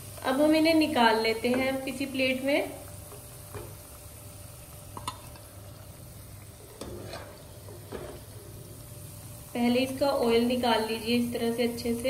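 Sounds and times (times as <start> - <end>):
potatoes sizzling in oil: 0.0 - 12.0.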